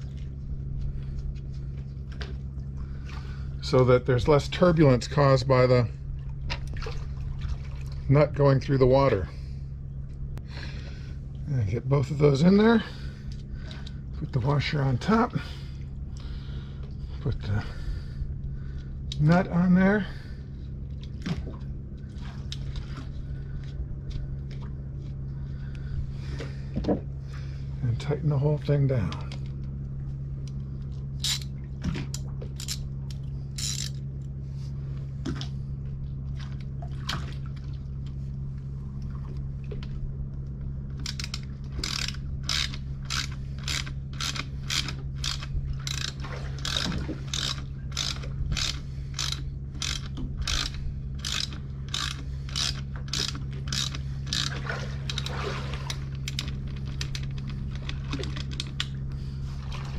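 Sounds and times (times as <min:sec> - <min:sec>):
steady low hum: 0:00.0 - 0:59.9
ratchet wrench clicking: 0:31.2 - 0:31.5, 0:32.6 - 0:32.8, 0:33.6 - 0:34.0, 0:41.0 - 0:54.5.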